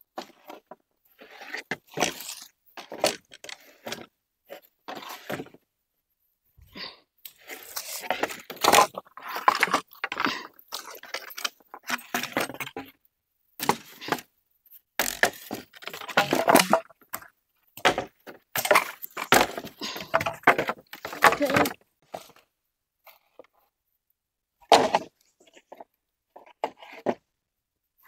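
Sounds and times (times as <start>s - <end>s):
bamboo poles knocking and clattering: 0.2s - 4.1s, 7.3s - 13.0s, 13.6s - 14.3s, 15.0s - 22.4s, 24.7s - 27.2s.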